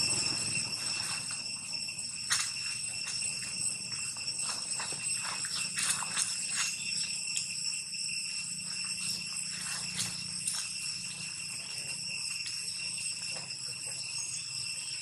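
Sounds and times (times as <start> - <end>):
high-pitched insect drone: 0.0 - 15.0
dry leaves rustling: 2.3 - 7.5, 8.4 - 12.2.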